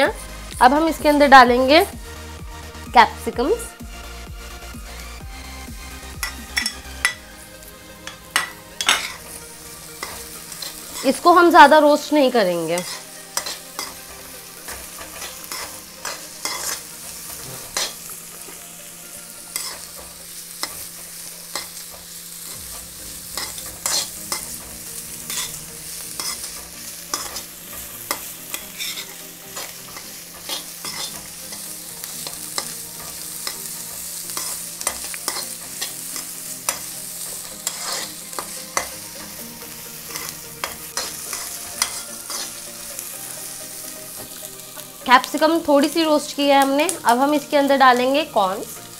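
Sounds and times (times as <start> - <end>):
vegetables sizzling in hot oil: 0.0 - 48.9
metal spoon scraping a pan: 6.1 - 11.4, 12.5 - 18.6, 19.5 - 43.1.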